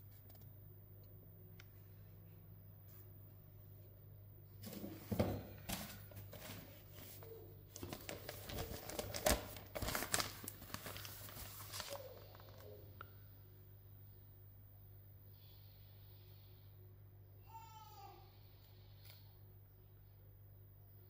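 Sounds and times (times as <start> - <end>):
newspaper rustling: 5.6 - 12.7.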